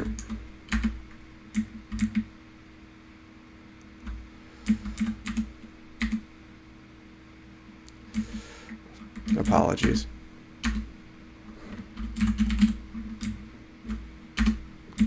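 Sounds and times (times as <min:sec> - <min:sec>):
faint steady hum: 0:00.0 - 0:15.0
keyboard keys clicking: 0:12.0 - 0:15.0.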